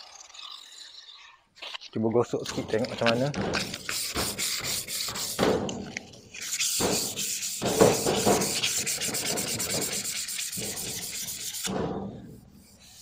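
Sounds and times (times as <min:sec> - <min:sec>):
sandpaper rubbing on metal: 0:02.7 - 0:05.6, 0:06.4 - 0:11.8.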